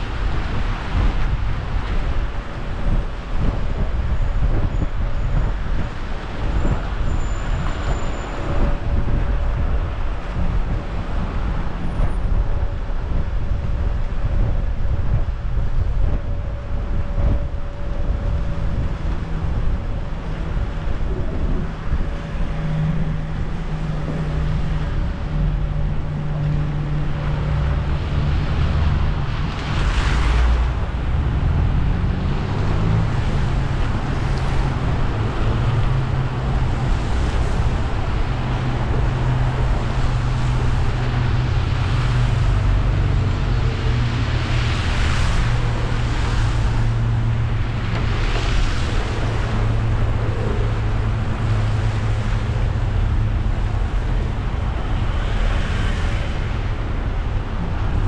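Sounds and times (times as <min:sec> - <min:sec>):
car engine hum: 0:00.0 - 0:58.0
tyres hissing on wet road: 0:20.4 - 0:58.0.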